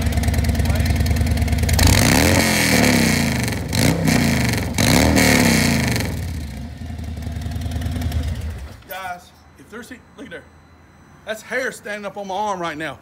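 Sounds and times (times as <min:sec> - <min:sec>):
motorcycle engine revving: 0:00.0 - 0:08.8.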